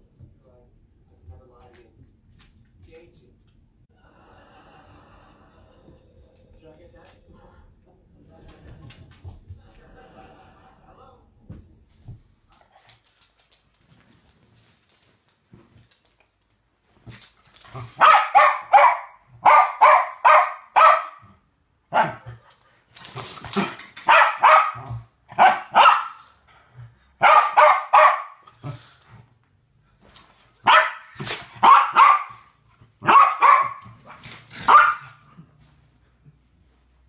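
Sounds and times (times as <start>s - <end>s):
dog barking: 18.0s - 21.3s, 21.9s - 22.3s, 24.1s - 26.2s, 27.2s - 28.4s, 30.6s - 35.2s.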